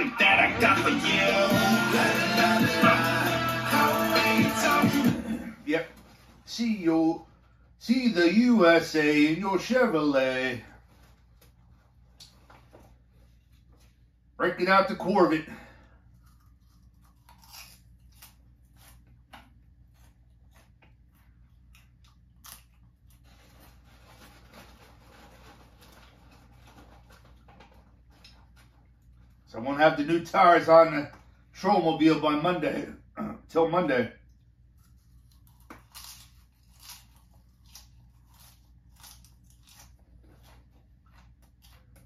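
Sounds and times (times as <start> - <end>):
person chewing crunchy food: 16.0 - 23.8, 34.4 - 42.0.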